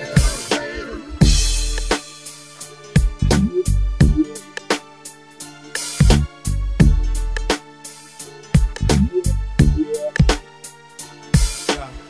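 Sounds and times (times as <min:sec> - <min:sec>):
snare and hi-hat strikes: 0:00.0 - 0:12.0
bass drum hits: 0:01.2 - 0:01.9, 0:03.0 - 0:04.2, 0:06.0 - 0:07.0.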